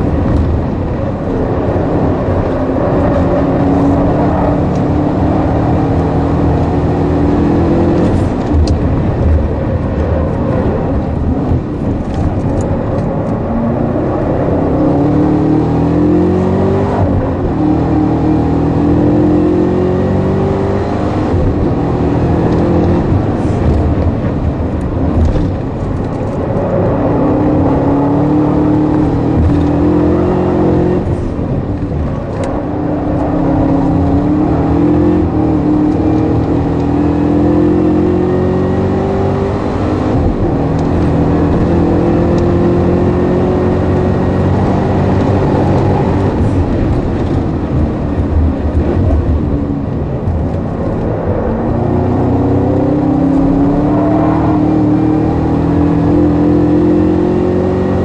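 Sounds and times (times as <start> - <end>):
car engine revving: 0.0 - 58.0
tyre and road noise: 0.0 - 58.0.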